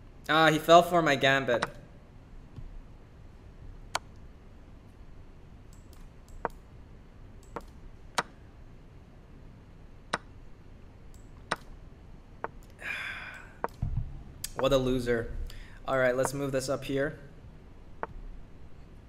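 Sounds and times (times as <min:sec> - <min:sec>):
sharp single clicks: 0:11.1 - 0:11.7.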